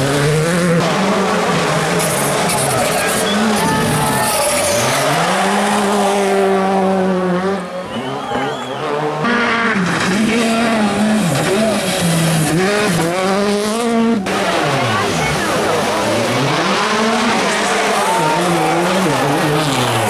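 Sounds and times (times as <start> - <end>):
rally car engines revving: 0.0 - 20.0
tyres squealing: 2.1 - 5.6.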